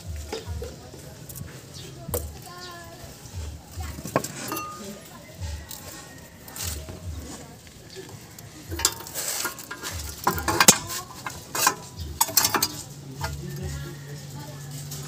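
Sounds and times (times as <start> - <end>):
sharp metal clanks: 4.1 - 5.0, 8.7 - 13.4.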